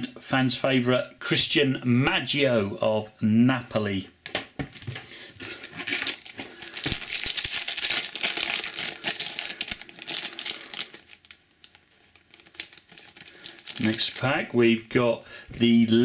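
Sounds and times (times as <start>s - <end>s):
foil pack crinkling: 4.7s - 14.6s.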